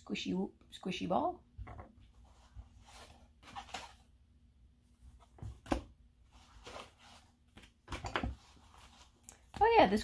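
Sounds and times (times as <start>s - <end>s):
paper knocks and rustles: 5.2s - 9.8s.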